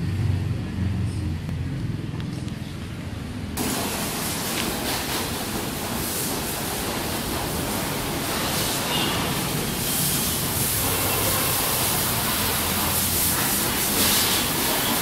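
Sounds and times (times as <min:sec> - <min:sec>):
high-pressure water spray hissing: 0:03.6 - 0:15.0.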